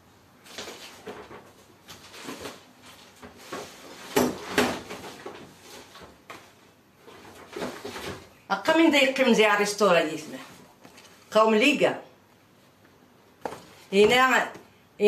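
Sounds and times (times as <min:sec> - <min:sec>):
household things knocking and clattering: 0:03.2 - 0:06.4.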